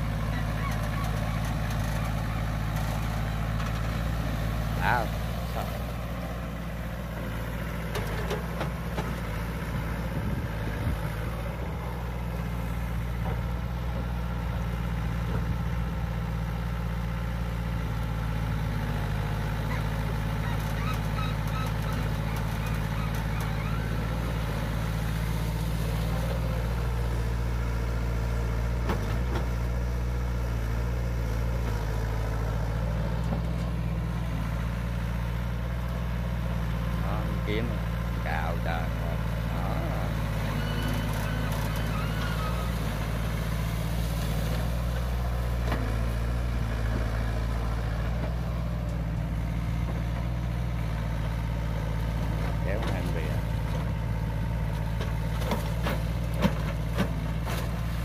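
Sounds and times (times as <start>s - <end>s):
excavator diesel engine: 0.0s - 58.0s.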